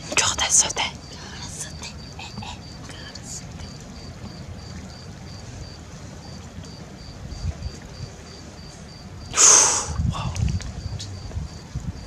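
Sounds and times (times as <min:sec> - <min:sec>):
low rumble: 0:10.0 - 0:12.0.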